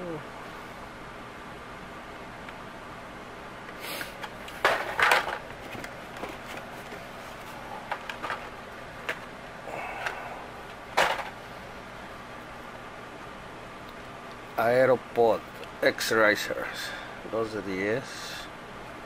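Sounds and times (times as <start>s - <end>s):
plastic and cardboard rustling: 4.1s - 9.3s.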